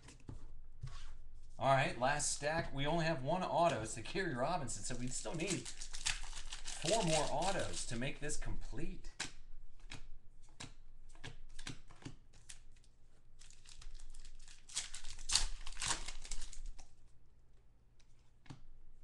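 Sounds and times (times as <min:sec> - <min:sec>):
cards rustling: 0:02.2 - 0:08.5, 0:09.1 - 0:17.0
foil wrapper crinkling and tearing: 0:04.7 - 0:08.3, 0:12.4 - 0:16.9.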